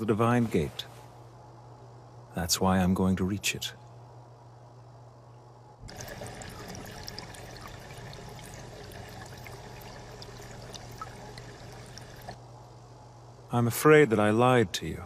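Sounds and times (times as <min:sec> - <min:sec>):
low steady hum: 0:00.0 - 0:15.0
water trickling and bubbling: 0:05.8 - 0:12.4.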